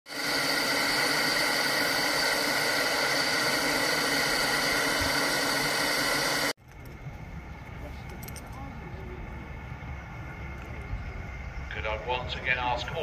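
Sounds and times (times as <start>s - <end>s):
steam hissing from safety valves: 0.1s - 6.6s.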